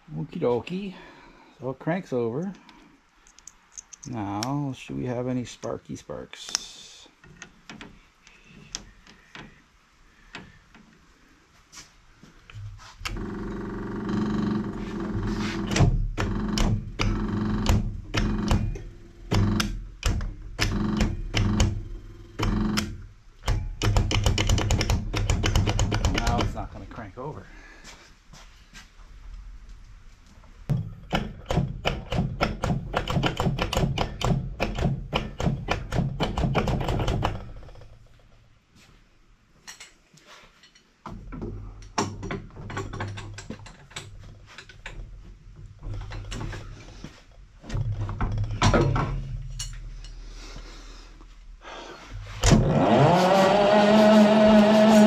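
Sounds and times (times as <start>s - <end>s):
machine running with loud hum: 52.4s - 55.0s.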